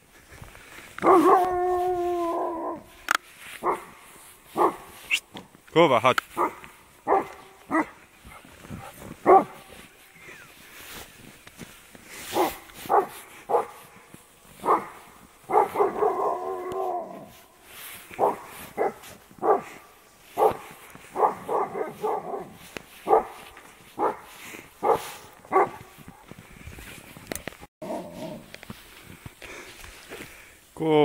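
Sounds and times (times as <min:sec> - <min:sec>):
dog barking: 0:01.0 - 0:01.5, 0:03.6 - 0:04.0, 0:04.6 - 0:04.9, 0:06.4 - 0:09.8, 0:12.3 - 0:13.9, 0:14.6 - 0:17.3, 0:18.2 - 0:26.0
dog howling: 0:01.0 - 0:03.0, 0:15.5 - 0:17.4.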